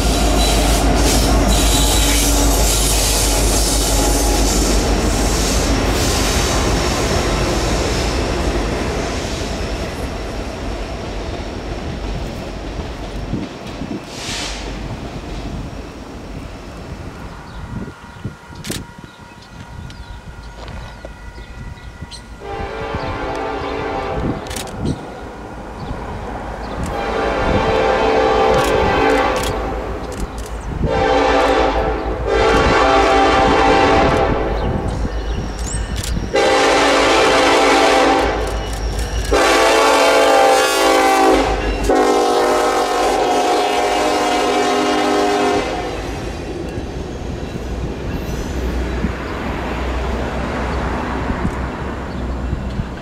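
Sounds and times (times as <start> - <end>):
locomotive rumble: 0.0 - 53.0
locomotive air horn blasts: 0.1 - 7.1, 22.4 - 24.4, 26.9 - 29.9, 30.8 - 34.6, 36.3 - 38.6, 39.3 - 46.2
train wheel clatter: 37.3 - 40.1.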